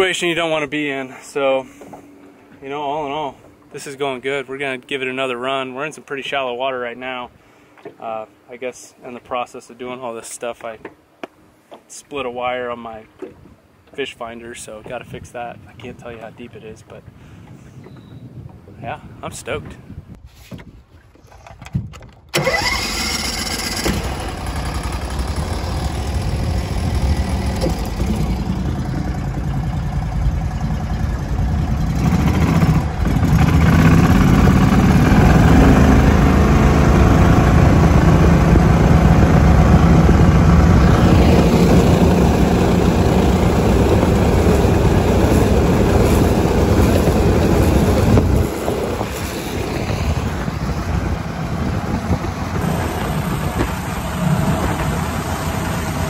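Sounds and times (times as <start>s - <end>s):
boat motor running: 22.4s - 56.0s.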